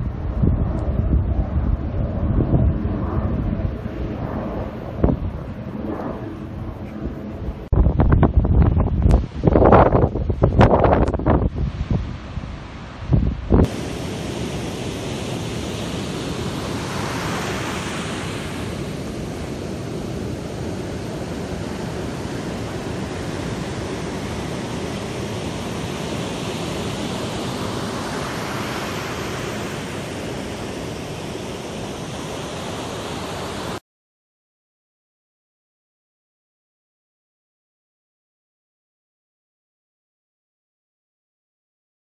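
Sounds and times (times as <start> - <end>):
wind gusts on microphone: 0.0 - 33.8
surf breaking on beach: 9.1 - 33.8.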